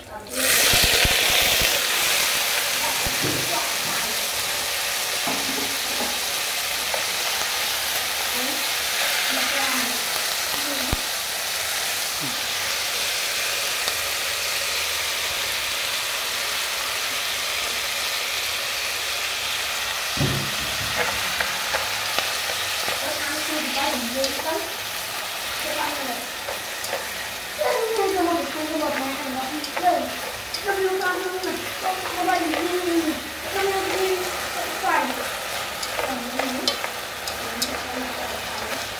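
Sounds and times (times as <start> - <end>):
vegetables sizzling in hot oil: 0.0 - 38.9
dull knock: 20.2 - 21.0
chopsticks clicking against pot: 21.0 - 25.6, 26.4 - 38.9.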